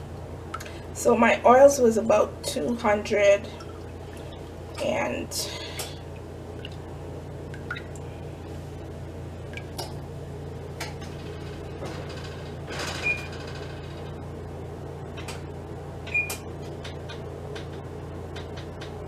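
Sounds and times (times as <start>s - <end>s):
steady low hum: 0.0s - 19.0s.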